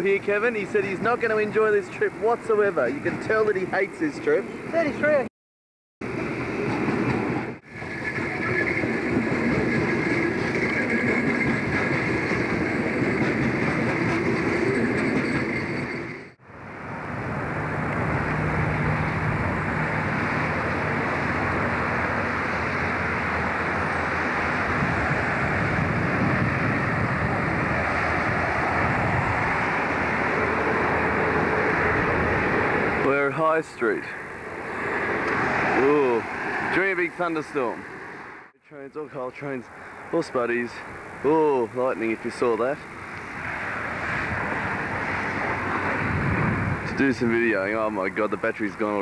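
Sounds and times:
train wagons rumbling on rails: 0:06.0 - 0:38.4, 0:42.6 - 0:49.0
steady rushing noise: 0:06.0 - 0:38.5, 0:39.4 - 0:49.0.

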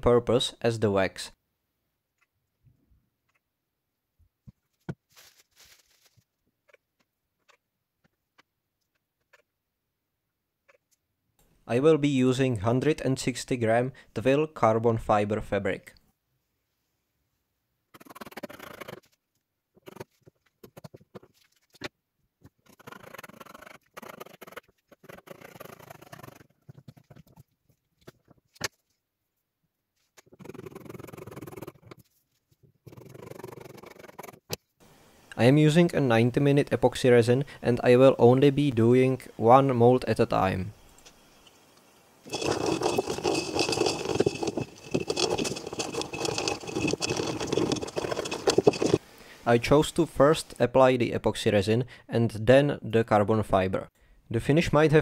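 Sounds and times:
stick scraping in glass jar: 0:42.3 - 0:49.0.

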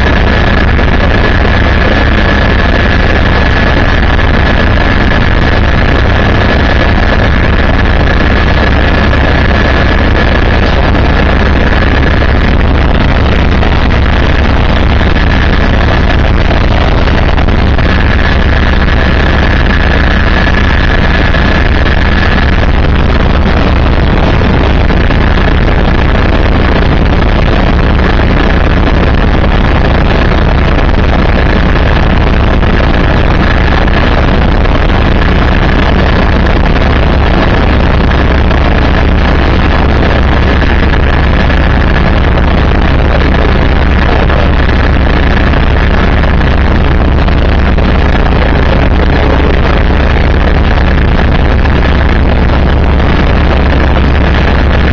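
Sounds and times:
helicopter rotor and engine drone: 0:00.0 - 0:54.9
high-pitched whine: 0:00.0 - 0:54.9.

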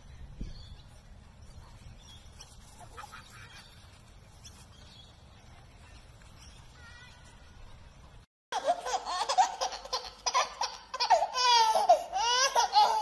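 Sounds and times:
baby laughing: 0:08.6 - 0:13.0.

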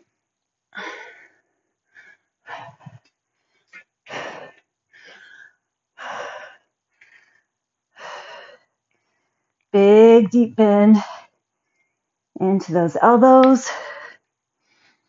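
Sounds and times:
woman breathing hard: 0:00.8 - 0:09.4.

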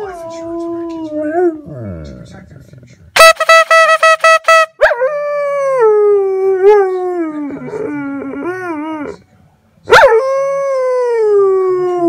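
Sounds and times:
dog howling: 0:04.8 - 0:09.2.

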